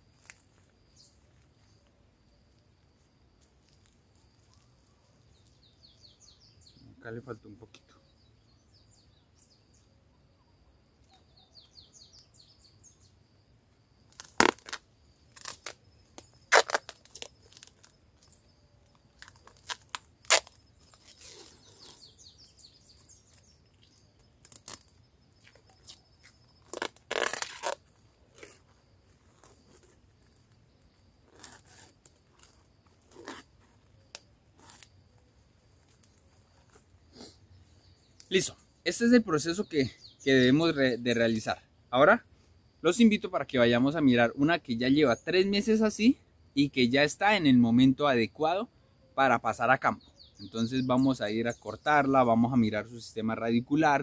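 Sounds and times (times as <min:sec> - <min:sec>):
faint birdsong: 0:00.0 - 0:54.0
plastic wrapping crinkling: 0:26.6 - 0:28.6.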